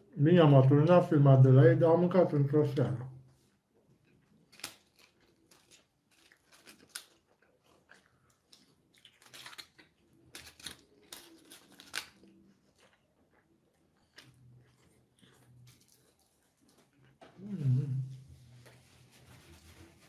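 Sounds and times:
quiet chewing: 0:03.4 - 0:19.9
paper wrapper crinkling: 0:04.2 - 0:13.0.

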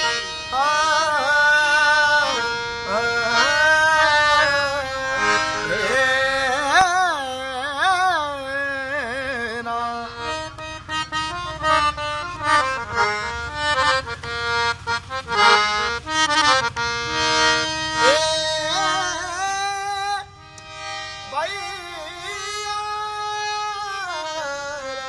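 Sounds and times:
man singing devotional song: 0:00.0 - 0:10.5, 0:17.7 - 0:25.0
harmonium chords: 0:00.0 - 0:25.0.

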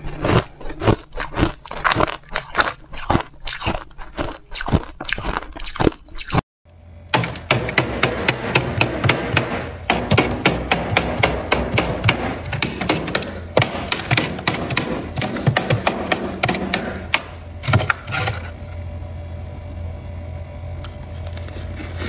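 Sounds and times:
crunching bites of frost: 0:00.0 - 0:06.4
scraping frost off freezer wall: 0:15.8 - 0:18.8, 0:21.0 - 0:22.0.

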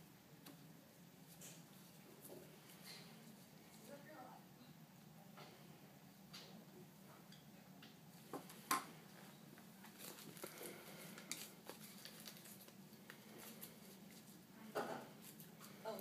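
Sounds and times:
soft plastic rustles: 0:00.4 - 0:04.2, 0:08.1 - 0:16.0.

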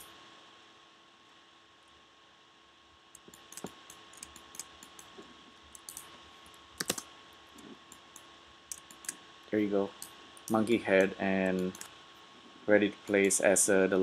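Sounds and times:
low hiss and hum: 0:00.0 - 0:14.0
mouse clicks: 0:03.2 - 0:05.1, 0:05.7 - 0:06.1, 0:06.8 - 0:09.2
keyboard keystrokes: 0:06.8 - 0:07.1.

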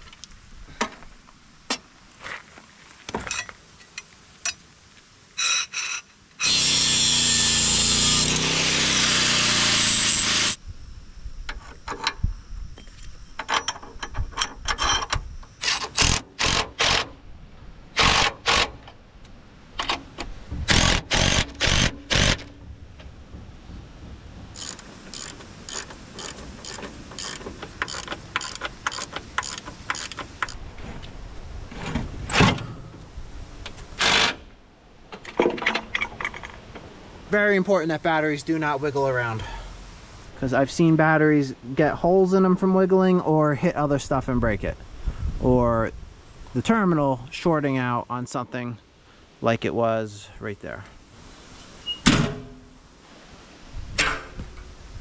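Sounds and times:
power tool running: 0:06.4 - 0:10.6, 0:20.7 - 0:22.5
ratchet clicks: 0:24.6 - 0:30.6.

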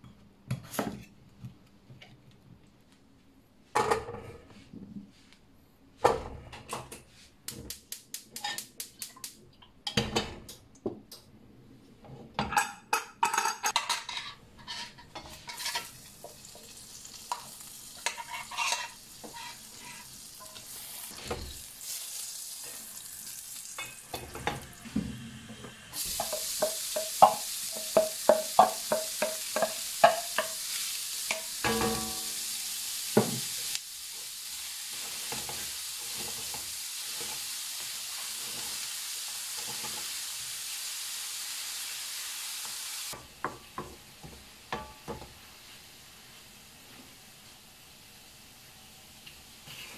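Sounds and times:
metal cookware clattering: 0:12.4 - 0:16.5, 0:17.2 - 0:21.6, 0:31.3 - 0:32.4
wooden spatula scraping pan: 0:14.0 - 0:16.0, 0:18.0 - 0:20.8
butter sizzling in frying pan: 0:14.7 - 0:25.0, 0:25.7 - 0:48.6.

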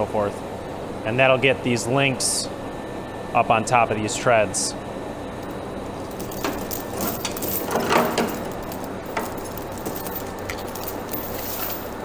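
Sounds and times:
steel chain clinking and rattling: 0:06.0 - 0:12.0.

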